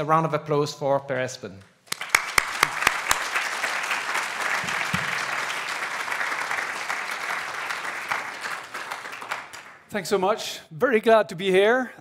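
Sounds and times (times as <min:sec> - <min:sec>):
sharp close claps: 0:01.6 - 0:09.9
audience applauding: 0:01.9 - 0:09.9.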